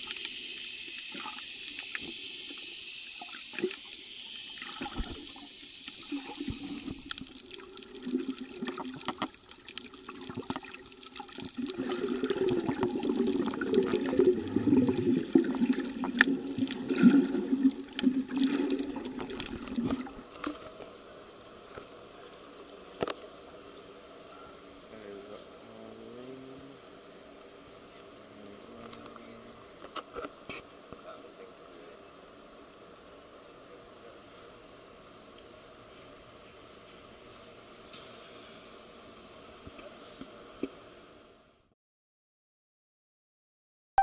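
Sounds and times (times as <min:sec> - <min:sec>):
muffled water sloshing and bubbling: 0:00.0 - 0:24.0.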